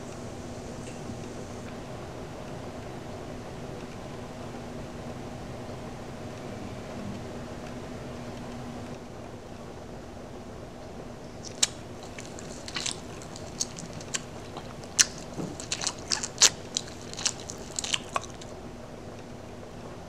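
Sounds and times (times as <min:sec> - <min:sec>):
person chewing crunchy food: 0:11.4 - 0:18.6.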